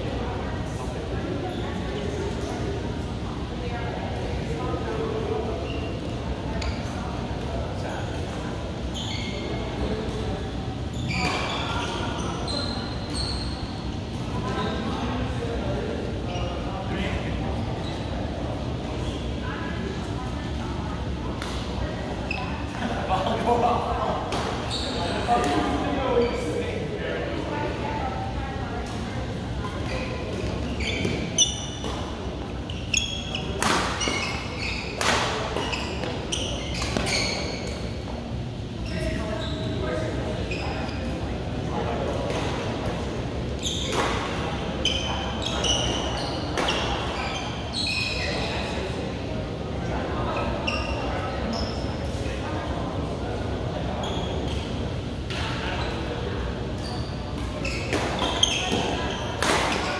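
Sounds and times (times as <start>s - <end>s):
shoe soles squeaking on court: 5.6s - 7.0s, 8.8s - 10.2s, 10.8s - 14.8s, 16.2s - 16.7s, 22.2s - 22.9s, 24.3s - 26.6s, 29.7s - 38.1s, 38.8s - 41.2s, 43.6s - 48.8s, 50.3s - 52.2s, 54.0s - 54.8s, 55.5s - 59.9s.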